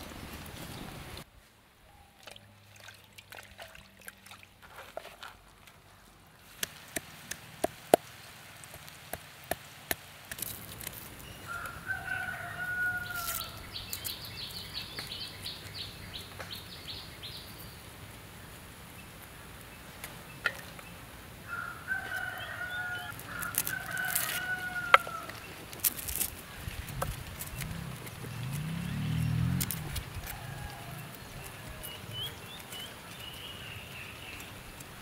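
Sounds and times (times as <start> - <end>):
rooster crowing: 11.4 - 13.6, 21.4 - 25.4, 30.2 - 32.0.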